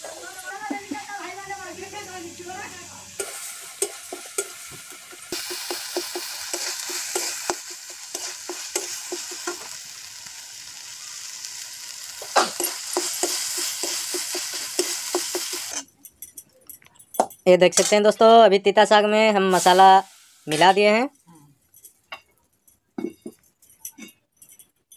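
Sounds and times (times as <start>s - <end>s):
paste sizzling in oil: 0.0s - 15.9s, 19.4s - 21.1s
spatula scraping a pan: 12.2s - 15.9s.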